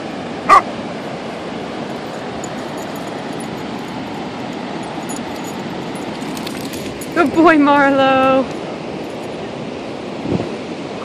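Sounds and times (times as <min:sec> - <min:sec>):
dog barking: 0:00.5 - 0:00.7.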